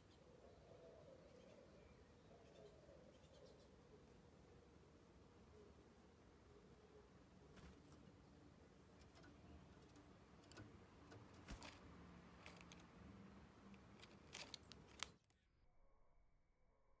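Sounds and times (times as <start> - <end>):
faint clicks and ticks: 8.9 - 15.3.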